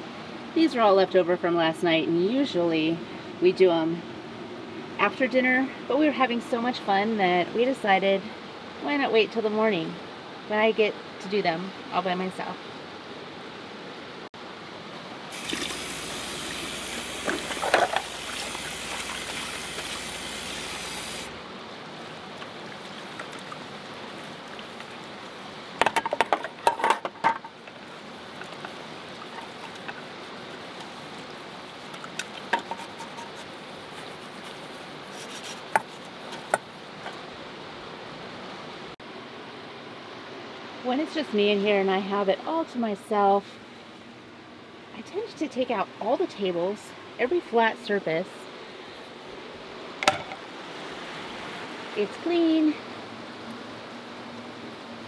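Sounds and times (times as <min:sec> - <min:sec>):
faucet water running into sink: 0:15.3 - 0:21.3
bowls and utensils clattering: 0:17.2 - 0:18.1, 0:25.8 - 0:30.1.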